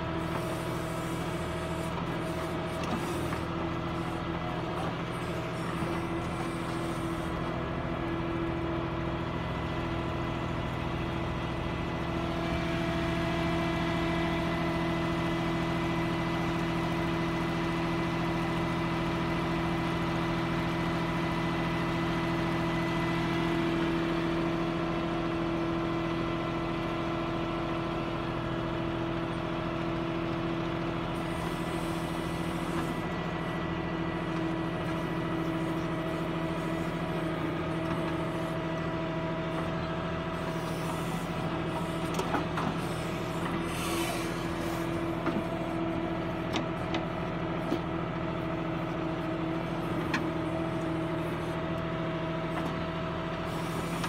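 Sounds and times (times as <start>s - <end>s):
diesel engine running under load: 0.0s - 54.0s.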